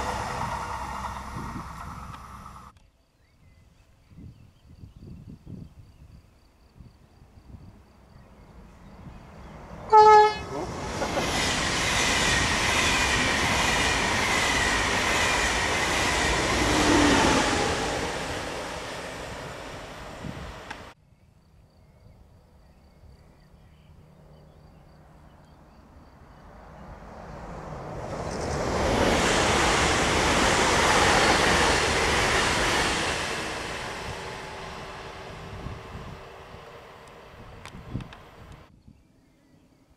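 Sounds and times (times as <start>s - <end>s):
train passing at speed: 0.0s - 2.7s, 7.6s - 21.0s, 24.2s - 38.7s
electric train rushing past: 0.0s - 2.8s, 8.5s - 21.0s, 26.0s - 38.7s
wheels rumbling on rails: 0.0s - 2.8s, 8.3s - 21.0s, 26.4s - 38.7s.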